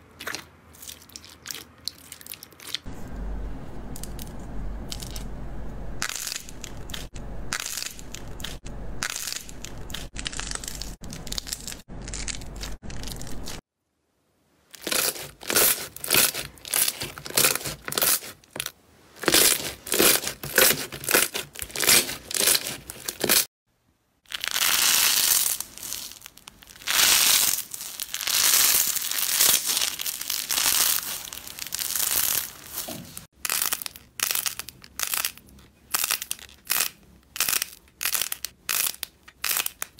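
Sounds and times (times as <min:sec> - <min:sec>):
slime squishing: 0:00.0 - 0:02.9, 0:14.8 - 0:23.5, 0:24.3 - 0:39.9.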